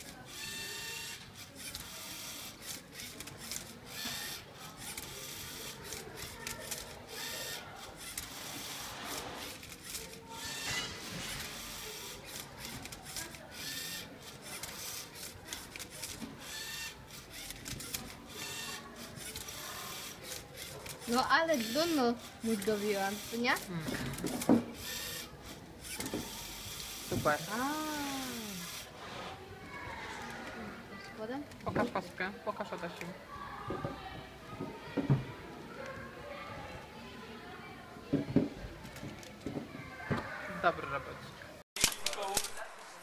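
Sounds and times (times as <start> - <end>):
robot motors whirring: 0.0 - 30.6.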